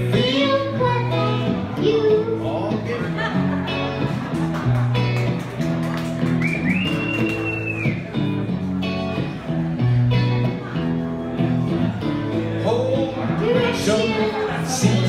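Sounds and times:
child's voice: 0:00.0 - 0:02.8, 0:13.3 - 0:14.4
electric guitar chords: 0:00.0 - 0:15.0.

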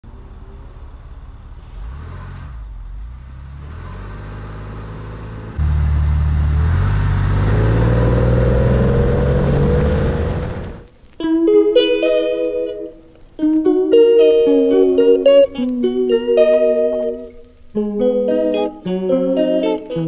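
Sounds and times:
car engine accelerating: 0:00.0 - 0:10.9.

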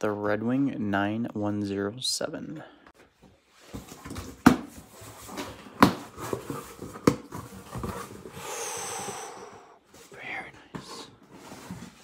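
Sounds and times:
cardboard and paper rustling: 0:03.1 - 0:08.4, 0:09.9 - 0:12.0
cardboard flaps knocking and scraping: 0:03.6 - 0:08.3.

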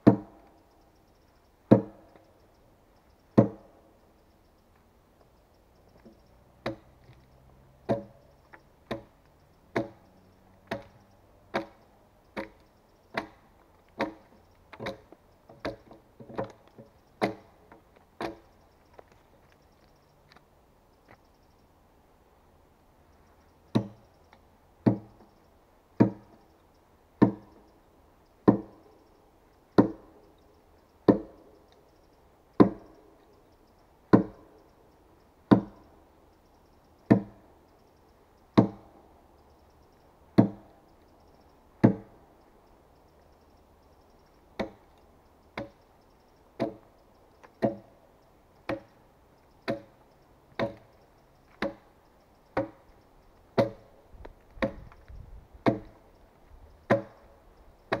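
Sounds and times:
axe chopping log: 0:00.0 - 0:00.4, 0:01.7 - 0:02.0, 0:03.4 - 0:03.7, 0:06.6 - 0:06.8, 0:07.9 - 0:08.2, 0:08.9 - 0:09.1, 0:09.7 - 0:10.0, 0:10.7 - 0:11.8, 0:12.4 - 0:13.4, 0:14.0 - 0:16.5, 0:17.2 - 0:17.5, 0:23.7 - 0:24.0, 0:24.8 - 0:25.1, 0:26.0 - 0:26.4, 0:27.2 - 0:27.5, 0:28.5 - 0:28.8, 0:29.8 - 0:30.0, 0:31.1 - 0:31.3, 0:32.6 - 0:32.8, 0:34.1 - 0:34.4, 0:35.5 - 0:35.8, 0:37.1 - 0:37.4, 0:38.6 - 0:38.8, 0:40.4 - 0:40.6, 0:41.8 - 0:42.1, 0:44.6 - 0:44.8, 0:46.6 - 0:46.8, 0:47.6 - 0:47.9, 0:48.7 - 0:48.9, 0:49.6 - 0:49.9, 0:50.6 - 0:50.8, 0:51.6 - 0:51.8, 0:52.6 - 0:52.8, 0:53.6 - 0:53.9, 0:54.6 - 0:54.9, 0:55.6 - 0:56.0, 0:56.9 - 0:57.2.

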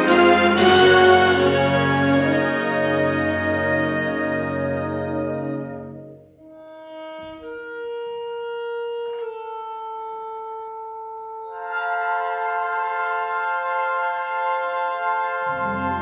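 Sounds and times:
concert band playing: 0:00.0 - 0:06.0, 0:11.6 - 0:16.0
soft wind instruments: 0:00.0 - 0:16.0
bright bell-like high notes: 0:11.4 - 0:16.0.

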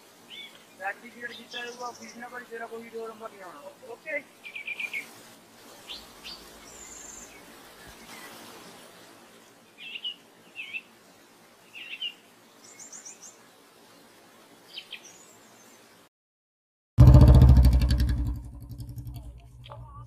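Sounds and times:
faint steady hiss: 0:00.0 - 0:16.1
small birds chirping: 0:00.2 - 0:13.4, 0:14.6 - 0:16.0, 0:19.0 - 0:20.0.

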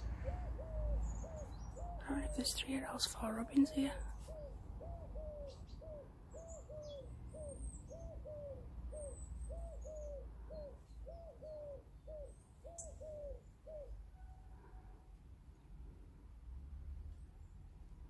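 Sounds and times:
small birds chirping: 0:00.0 - 0:14.0
dove cooing: 0:00.0 - 0:14.8.

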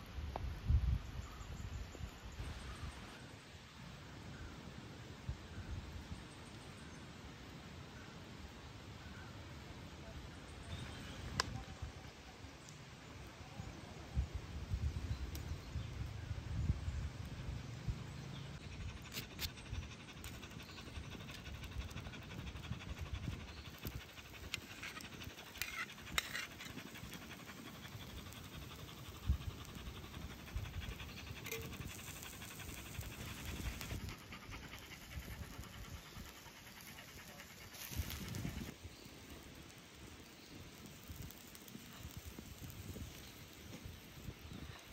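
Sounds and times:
dog panting: 0:18.5 - 0:38.8
metal spatula scraping griddle: 0:25.6 - 0:26.5.

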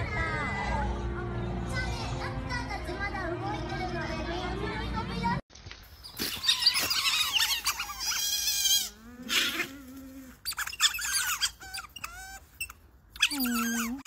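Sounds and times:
otters squeaking and chirping: 0:06.0 - 0:09.7, 0:10.4 - 0:14.0.

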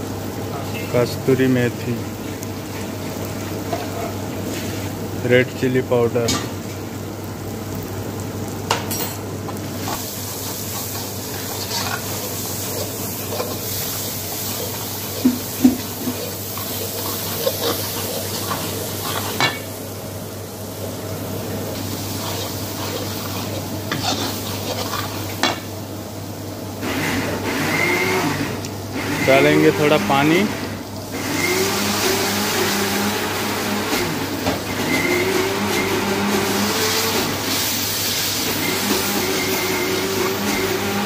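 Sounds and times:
low kitchen hum: 0:00.0 - 0:41.0
ladle scraping spices in pan: 0:09.5 - 0:19.8, 0:21.6 - 0:25.7, 0:37.5 - 0:41.0.

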